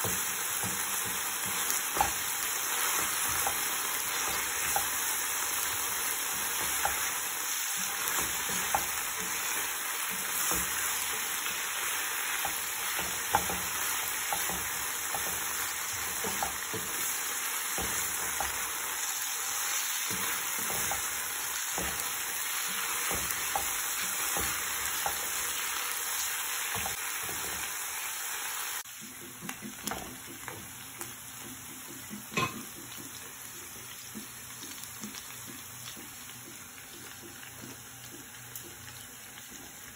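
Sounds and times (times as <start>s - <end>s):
spoon knocking on pan: 0.0s - 7.2s, 7.8s - 18.9s, 19.6s - 25.6s, 26.6s - 27.7s, 29.0s - 33.2s
food sizzling in frying pan: 0.0s - 39.9s.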